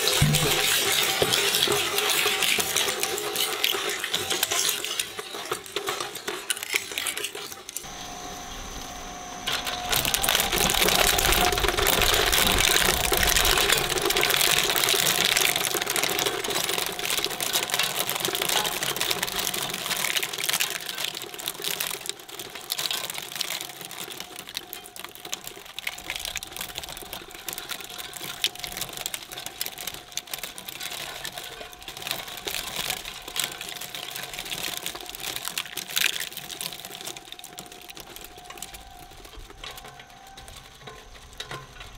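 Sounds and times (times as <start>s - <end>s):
plastic parts snapping and breaking: 0.0s - 7.8s, 9.5s - 41.9s
shredder drive whine: 7.8s - 14.5s.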